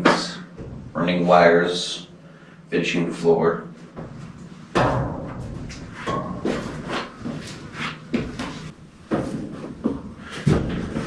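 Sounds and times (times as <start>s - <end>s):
boots clanking on steel floor: 3.9s - 11.0s
metal clanks and knocks: 4.7s - 7.4s.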